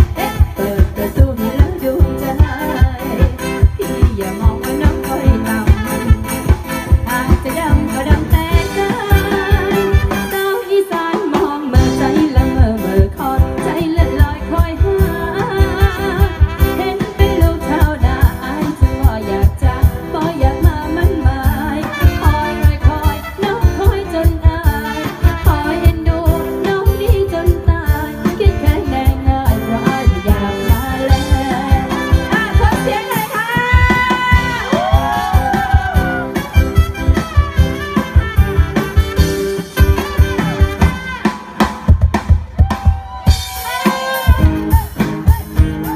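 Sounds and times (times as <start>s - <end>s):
person singing: 0.0s - 36.6s
live band over loudspeakers: 0.0s - 45.9s
steady drum beat: 23.8s - 45.9s.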